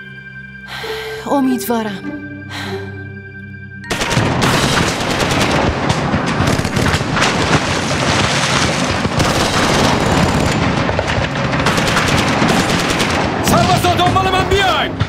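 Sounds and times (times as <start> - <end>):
machine guns and rifles firing: 3.9 - 15.0.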